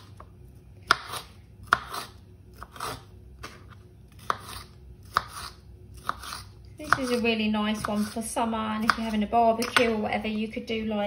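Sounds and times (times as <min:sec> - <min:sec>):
knife crunching through pepper: 0:00.9 - 0:08.2
knife tapping chopping board: 0:08.8 - 0:10.0.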